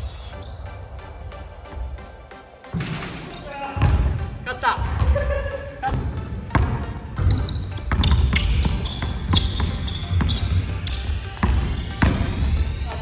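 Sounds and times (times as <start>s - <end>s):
sneaker squeaks: 0.2s - 0.8s, 5.8s - 13.0s
basketball bouncing on wooden floor: 5.9s - 12.6s.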